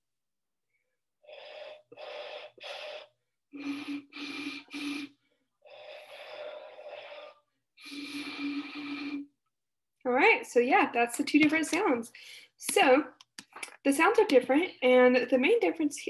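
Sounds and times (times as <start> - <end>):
high bottle hoots: 3.6 - 5.2.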